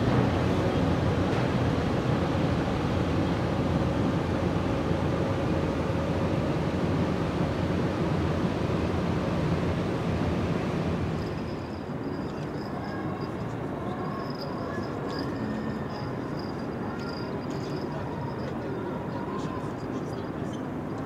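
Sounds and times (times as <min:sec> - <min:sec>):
harbour low rumble: 0:00.0 - 0:20.4
faint high whine: 0:11.1 - 0:20.8.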